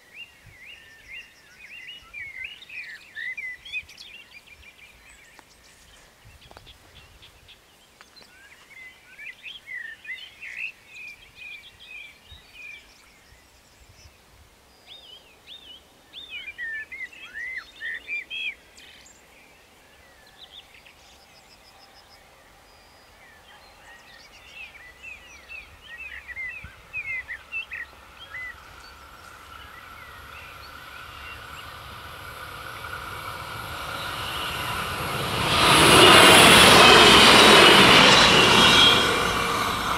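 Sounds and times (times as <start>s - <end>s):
diesel railcar rumble and hum: 26.8s - 39.9s.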